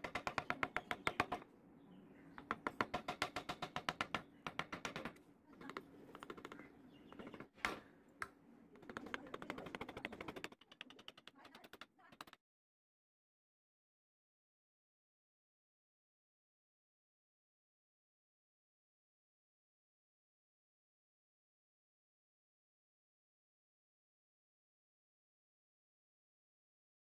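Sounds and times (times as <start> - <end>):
chisel tapping into wood: 0.0 - 1.4, 2.4 - 12.4.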